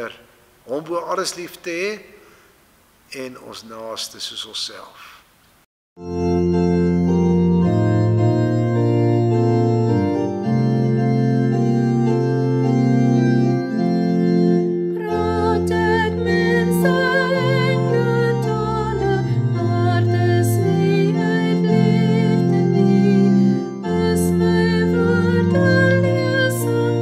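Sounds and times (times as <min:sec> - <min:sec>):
higher melody with vibrato: 0:06.0 - 0:27.0
organ playing sustained chords: 0:06.0 - 0:27.0.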